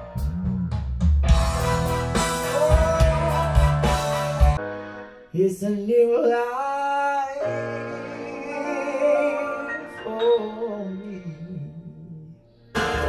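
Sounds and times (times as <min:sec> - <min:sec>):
soft instrumental backing: 0:00.0 - 0:05.5
man singing a slow ballad: 0:02.4 - 0:04.5, 0:05.3 - 0:12.5.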